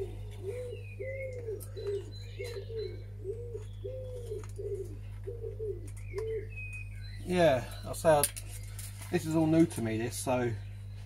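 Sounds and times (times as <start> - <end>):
pigeon cooing: 0.0 - 7.8
faint bird chirps: 0.0 - 11.0
steady low hum: 0.0 - 11.0.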